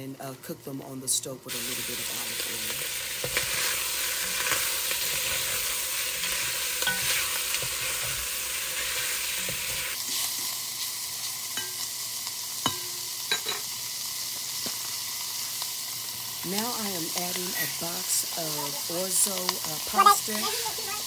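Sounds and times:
meatballs sizzling in oil: 0:01.5 - 0:21.0
utensil scraping and knocking pot: 0:03.2 - 0:10.0.

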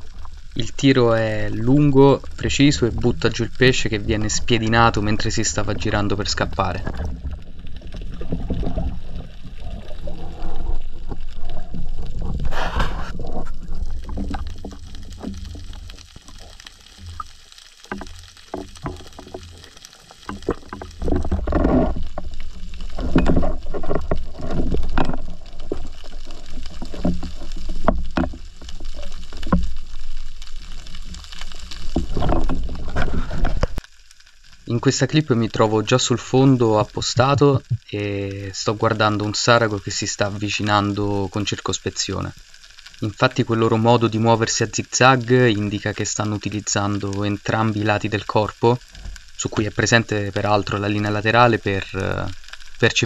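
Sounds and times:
water rushing and gurgling: 0:00.0 - 0:53.0.

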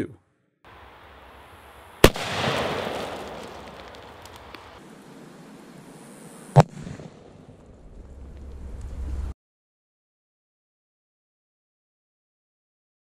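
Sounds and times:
firecracker bang: 0:02.0 - 0:04.8.

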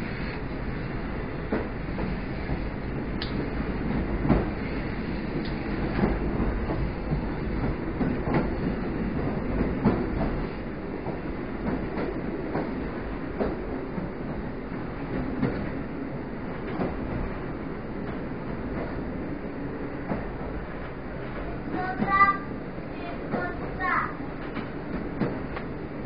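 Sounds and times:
train rumbling: 0:00.0 - 0:26.0
wheels clacking over rail joints: 0:20.0 - 0:25.8.

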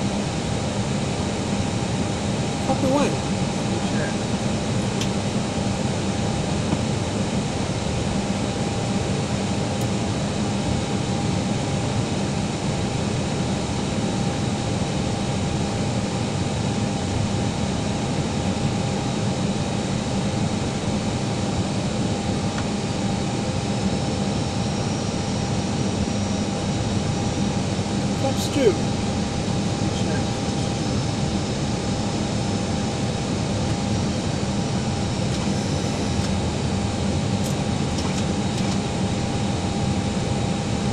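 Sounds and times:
airliner cabin jet drone: 0:00.0 - 0:40.9
faint constant whine: 0:17.2 - 0:40.9.

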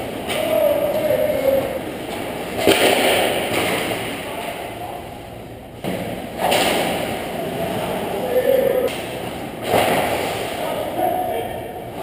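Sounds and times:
sharp hockey hit: 0:02.6 - 0:04.1.

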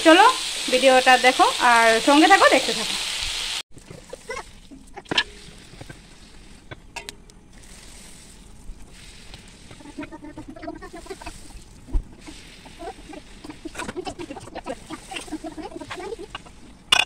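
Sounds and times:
food sizzling in hot oil: 0:00.0 - 0:17.0
animal calls: 0:09.8 - 0:16.7.

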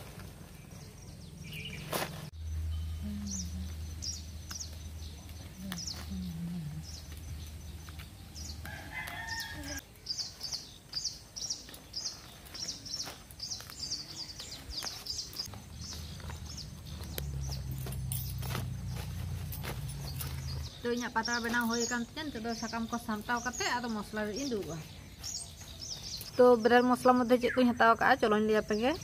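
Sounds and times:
leaves crackling and rustling: 0:00.0 - 0:02.5, 0:03.7 - 0:26.4
low hum: 0:02.4 - 0:08.7
rooster crowing: 0:08.6 - 0:09.8
high-pitched bird chirps: 0:20.1 - 0:29.0.

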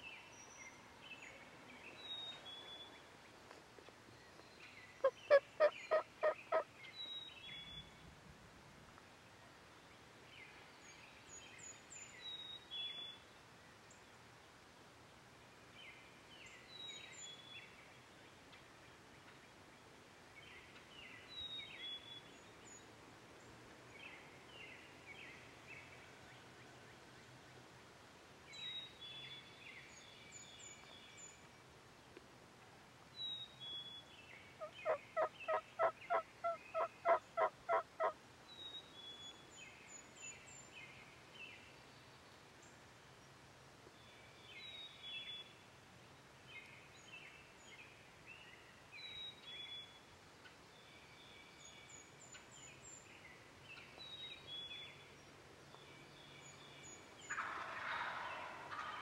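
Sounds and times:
songbird singing: 0:00.0 - 0:08.2, 0:09.2 - 0:27.8, 0:28.4 - 0:59.0
turkey yelps: 0:05.0 - 0:06.6, 0:34.8 - 0:38.1, 0:57.3 - 0:59.0.

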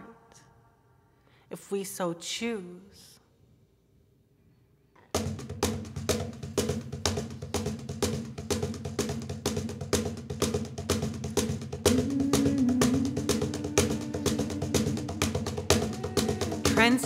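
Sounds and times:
percussion beat with bass: 0:05.1 - 0:17.0
held note: 0:11.8 - 0:17.0.

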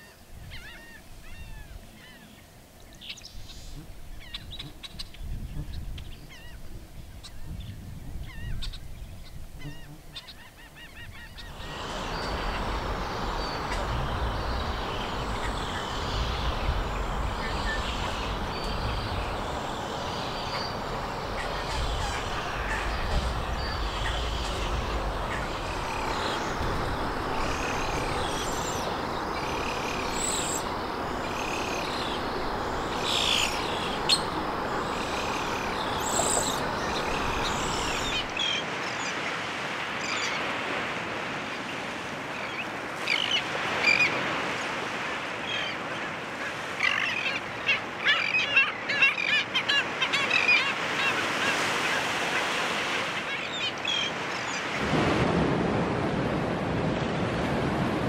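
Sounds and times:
birds singing: 0:00.5 - 0:39.3, 0:45.4 - 0:52.5, 0:53.2 - 0:54.8
wind noise: 0:03.4 - 0:10.2, 0:11.0 - 0:38.4, 0:54.7 - 0:58.0
shorebird colony calling: 0:08.2 - 0:39.4, 0:45.3 - 0:54.8
steady hiss: 0:11.4 - 0:38.4.

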